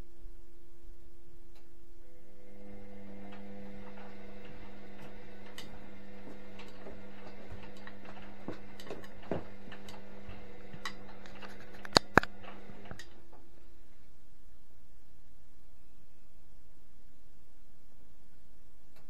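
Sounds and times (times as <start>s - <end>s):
washing machine humming: 2.0s - 14.0s
sharp clicks: 3.3s - 13.2s.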